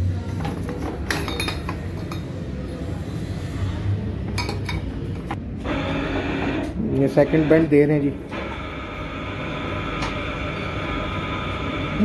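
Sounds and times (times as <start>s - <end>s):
steady low hum: 4.9s - 12.0s.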